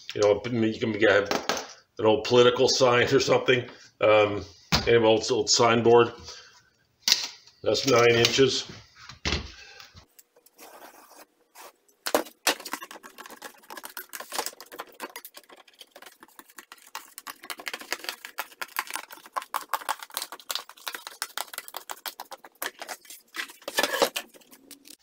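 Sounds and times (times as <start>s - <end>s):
scissors cutting plastic sheet: 11.6s - 25.0s.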